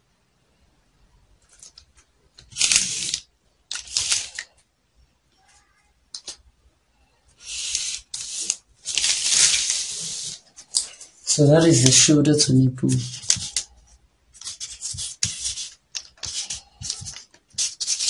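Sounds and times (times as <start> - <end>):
marker scratching on paper: 7.4 - 10.4, 11.4 - 18.0.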